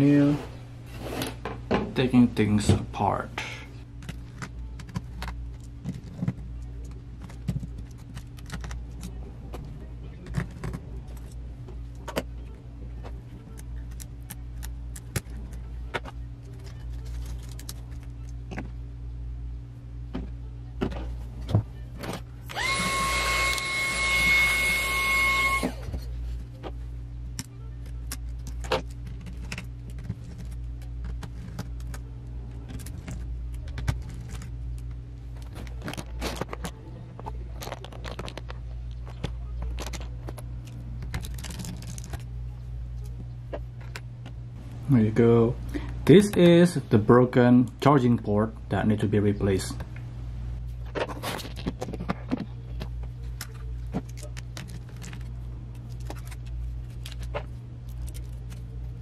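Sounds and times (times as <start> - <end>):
steady low hum: 0.0 - 59.0
small motor whirring: 22.5 - 25.8.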